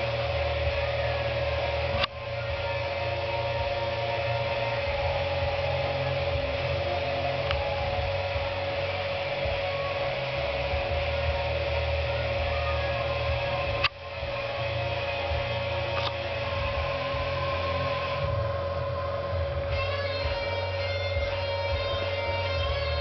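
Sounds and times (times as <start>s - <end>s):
steady mechanical hum: 0.0s - 23.0s.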